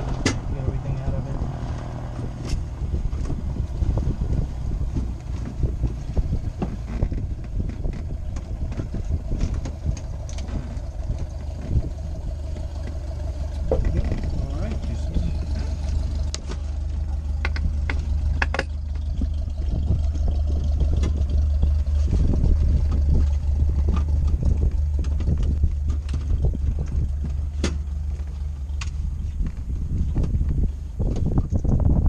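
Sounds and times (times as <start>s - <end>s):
steady low rumble: 0.0s - 32.0s
clicks knocks and rustles of gear: 22.6s - 31.8s.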